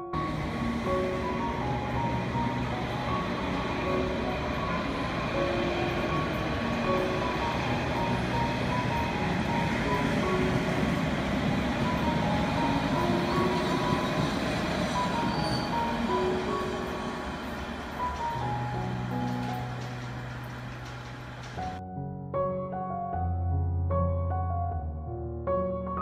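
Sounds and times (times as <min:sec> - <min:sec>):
simple stepping melody: 0:00.0 - 0:20.6
train running on rails: 0:00.0 - 0:21.8.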